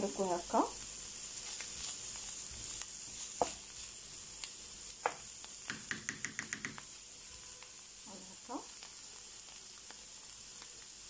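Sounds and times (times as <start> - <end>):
food sizzling in oil: 0.0 - 11.0
spatula scraping and knocking on pan: 1.4 - 3.9, 5.0 - 6.9.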